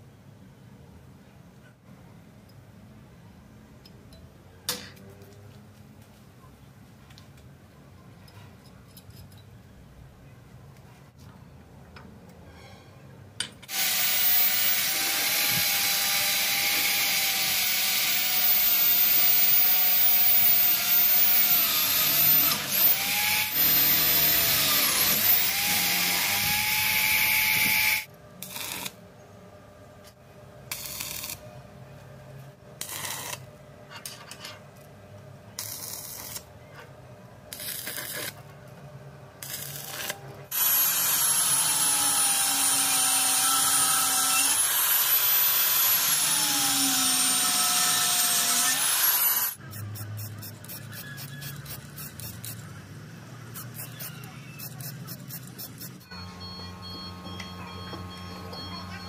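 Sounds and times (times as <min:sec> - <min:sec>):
electric drill boring steel: 0:13.7 - 0:28.9, 0:39.5 - 0:49.6
arc welding crackle: 0:27.7 - 0:29.0, 0:30.7 - 0:31.4, 0:32.8 - 0:33.4, 0:35.6 - 0:36.5, 0:37.5 - 0:38.4, 0:39.4 - 0:41.2.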